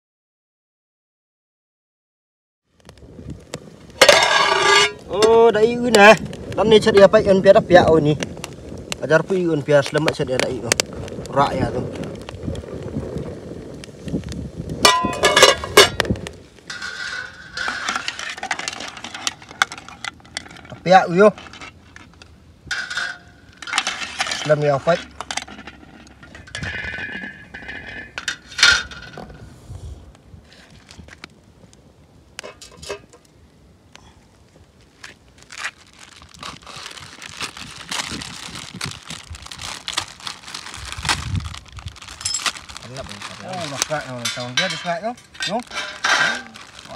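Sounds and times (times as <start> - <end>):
plastic packets crinkling: 34.8 - 46.9.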